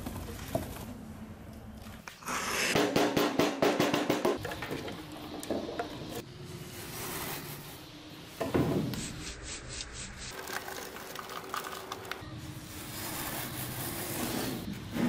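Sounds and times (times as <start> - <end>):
sand rubbing and scraping: 6.5 - 8.2, 9.0 - 11.3, 12.4 - 15.0.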